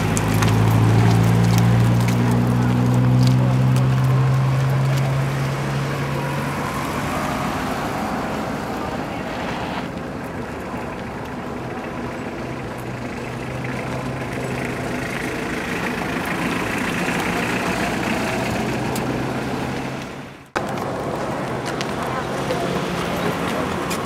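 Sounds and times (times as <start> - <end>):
outdoor noise: 0.0 - 24.0
vehicle engine idling: 0.0 - 24.0.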